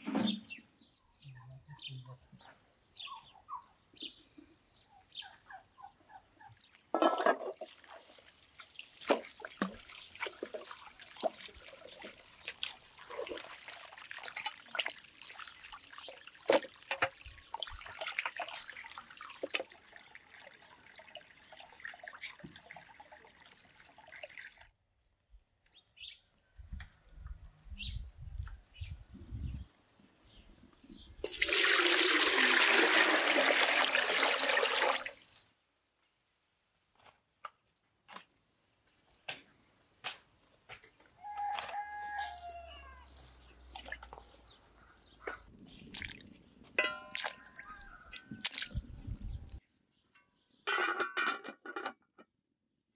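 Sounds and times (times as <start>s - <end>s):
birds chirping: 0.2s - 6.9s, 41.2s - 50.6s
hose water splashing into basin: 7.5s - 24.7s, 31.2s - 35.5s, 45.9s - 49.6s.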